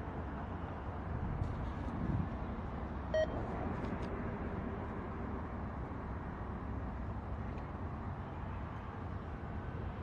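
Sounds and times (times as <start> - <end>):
short beep: 3.2 - 3.4.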